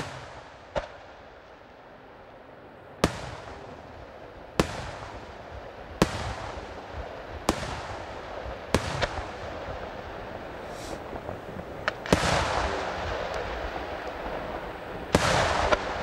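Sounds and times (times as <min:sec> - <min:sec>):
rumble of distant bursts: 0:00.0 - 0:16.0
firework shells bursting: 0:10.4 - 0:16.0.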